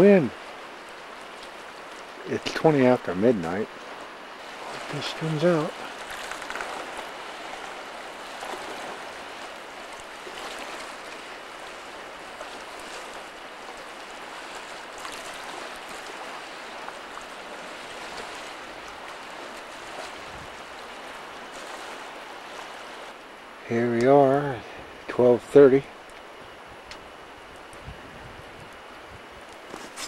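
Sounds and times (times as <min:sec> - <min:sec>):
strong wind blowing: 0:20.2 - 0:20.6, 0:26.4 - 0:29.4.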